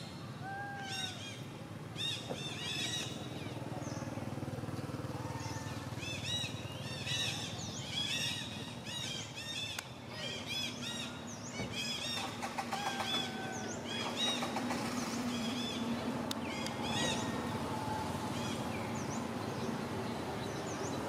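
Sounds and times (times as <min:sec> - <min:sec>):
high animal calls: 0:12.2 - 0:15.9.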